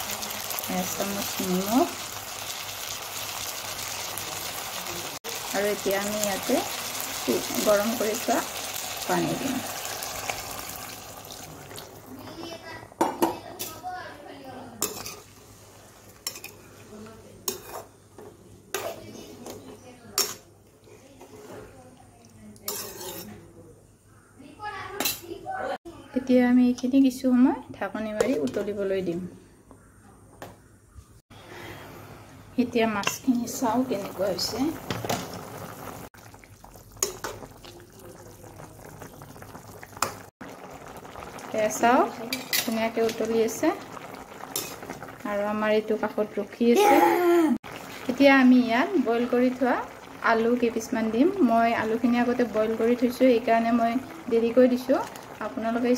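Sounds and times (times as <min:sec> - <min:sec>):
pot of broth boiling: 0:00.0 - 0:12.7, 0:33.4 - 0:55.9
metal spatula scraping pan: 0:14.8 - 0:15.5, 0:17.4 - 0:17.9, 0:22.7 - 0:23.4.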